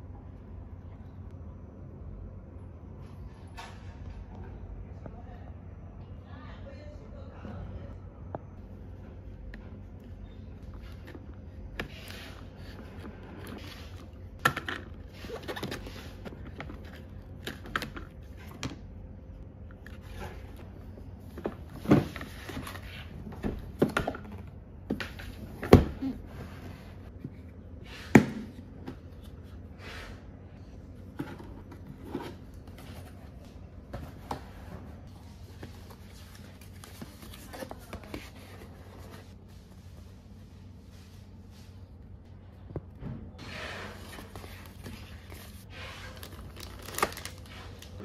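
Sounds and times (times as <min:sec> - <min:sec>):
paper and plastic bags rustling: 0:43.7 - 0:48.0.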